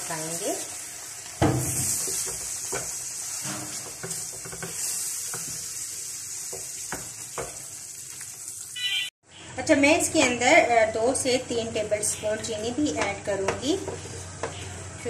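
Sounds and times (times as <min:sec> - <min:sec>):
spatula scraping and knocking pan: 0:01.4 - 0:05.7, 0:12.8 - 0:14.9.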